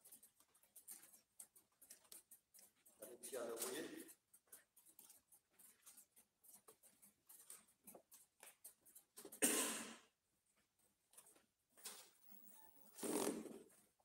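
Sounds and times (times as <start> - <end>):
people moving about rustling: 0.0 - 9.5.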